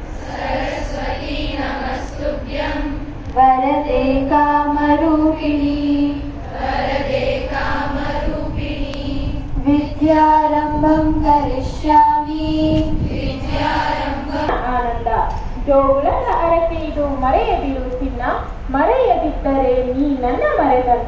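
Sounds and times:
women and girls chanting in unison: 0:00.0 - 0:03.1, 0:03.8 - 0:10.3, 0:12.2 - 0:14.5.

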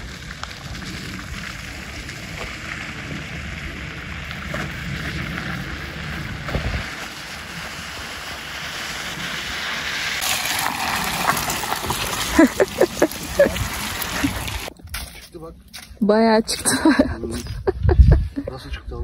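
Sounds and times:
wind buffeting microphone: 0:00.0 - 0:08.0, 0:17.1 - 0:19.0
tyres on snow: 0:00.0 - 0:18.0.

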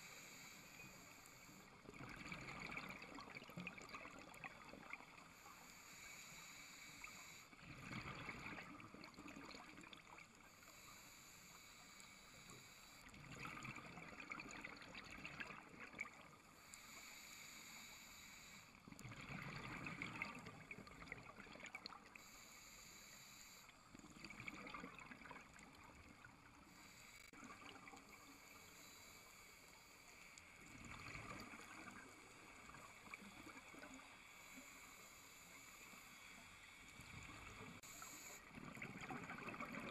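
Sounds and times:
regulator inhalation hiss: 0:00.0 - 0:01.7, 0:05.2 - 0:07.6, 0:10.5 - 0:13.1, 0:16.4 - 0:18.8, 0:22.2 - 0:23.7, 0:26.7 - 0:27.3, 0:28.1 - 0:30.6, 0:34.0 - 0:36.9, 0:37.5 - 0:38.5
exhaled bubbles rumbling: 0:07.6 - 0:10.1, 0:19.0 - 0:21.8, 0:30.7 - 0:32.0, 0:38.5 - 0:39.9.

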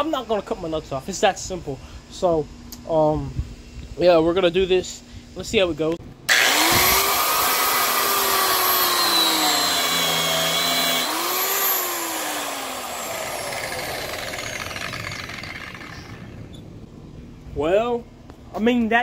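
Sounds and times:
angle grinder cutting rubber tyre: 0:06.3 - 0:16.6.

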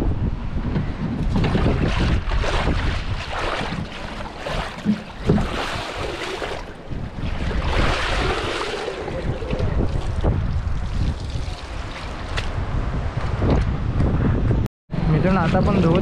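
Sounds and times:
wind rumbling on microphone: 0:00.0 - 0:16.0
water sloshing in metal tub: 0:01.2 - 0:12.5.

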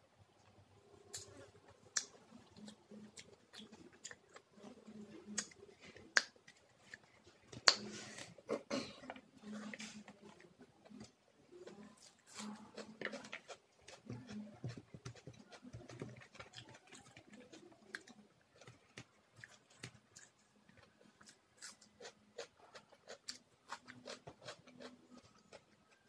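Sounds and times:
crunchy chewing: 0:00.4 - 0:26.0.

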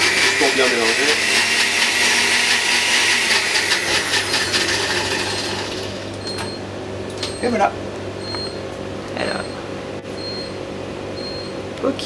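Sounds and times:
blender motor running: 0:00.0 - 0:06.2.

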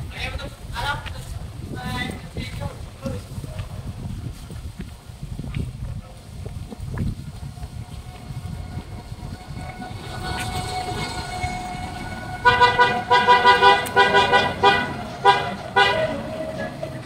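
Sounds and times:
street traffic rumble: 0:00.0 - 0:17.0
vehicle horn honking: 0:09.6 - 0:17.0.

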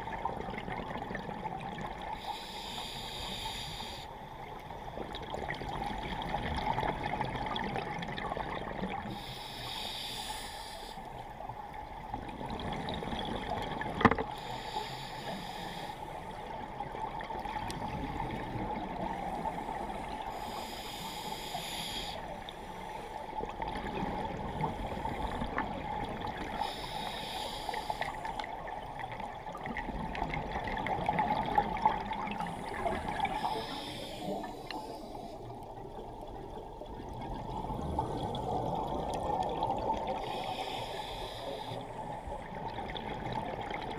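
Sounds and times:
scuba exhale bubbles: 0:29.5 - 0:43.9.

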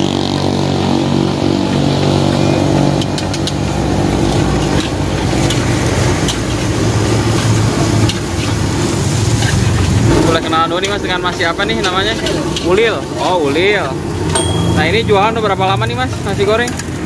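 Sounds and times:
metal spatula scraping a wok: 0:03.1 - 0:14.3.

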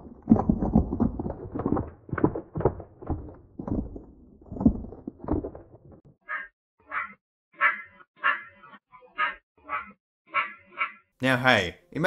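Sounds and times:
irregular low bursts and knocks: 0:00.0 - 0:06.2.

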